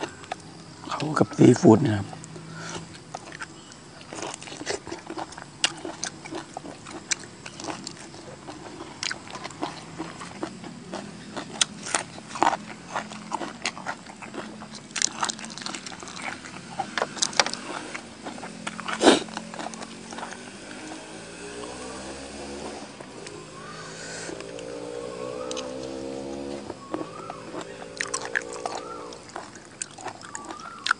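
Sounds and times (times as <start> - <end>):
moist food handling: 26.6 - 30.9.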